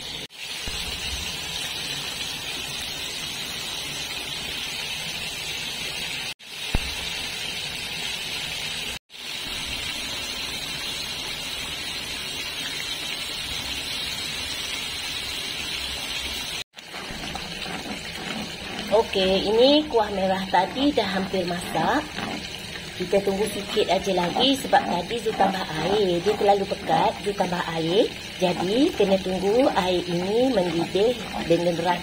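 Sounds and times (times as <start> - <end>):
chicken sizzling in hot oil: 0.0 - 32.0
short sharp pop: 6.7 - 7.1.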